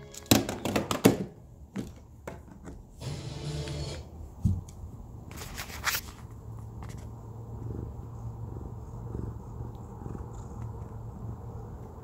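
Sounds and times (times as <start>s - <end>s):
cat purring: 7.2s - 12.0s.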